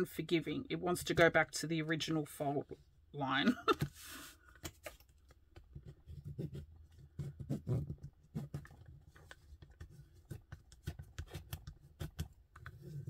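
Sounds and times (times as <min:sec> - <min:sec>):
bone folder scraping plastic: 0:03.8 - 0:13.0.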